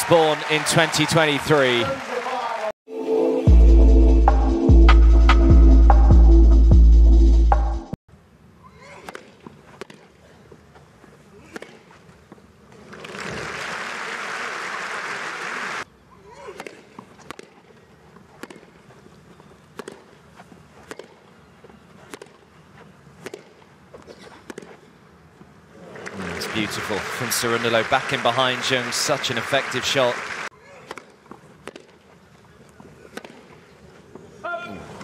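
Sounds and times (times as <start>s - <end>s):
crowd applause: 0.0s - 2.7s, 12.9s - 15.8s, 26.0s - 30.5s
racket hitting tennis ball: 16.5s - 17.6s, 18.4s - 18.8s, 19.8s - 20.1s, 20.8s - 21.2s, 22.1s - 22.4s, 23.2s - 24.8s, 30.8s - 32.0s, 33.0s - 33.6s.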